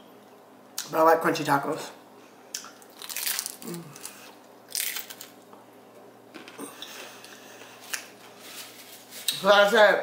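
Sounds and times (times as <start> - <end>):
taco shell crunching: 2.6 - 5.4.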